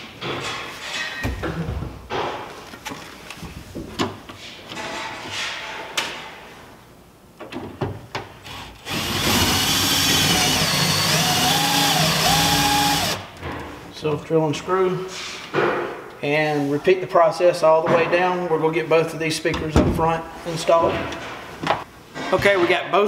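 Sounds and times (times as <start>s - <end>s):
cordless drill driving screw: 8.5s - 13.2s.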